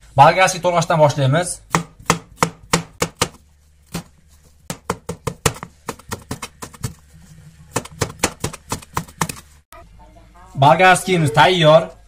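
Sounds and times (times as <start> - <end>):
knife chopping on cutting board: 1.7 - 7.0, 7.7 - 9.5.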